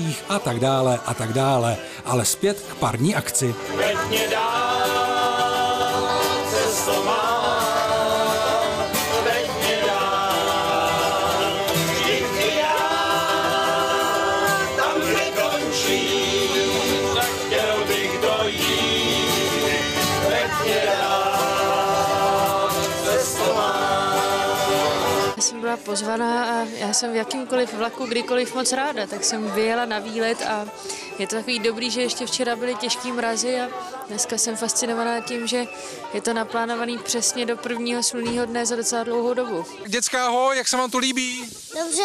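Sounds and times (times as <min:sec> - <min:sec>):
men singing: 0:00.0 - 0:02.3, 0:03.5 - 0:25.4.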